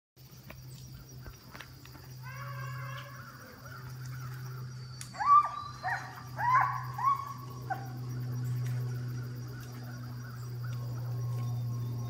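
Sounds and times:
hounds baying: 3.7s - 8.3s.

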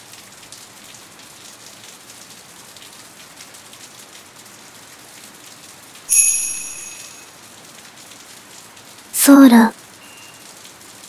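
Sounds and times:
steady rain falling: 0.0s - 6.1s, 7.2s - 11.0s
high ringing tones: 6.1s - 7.3s.

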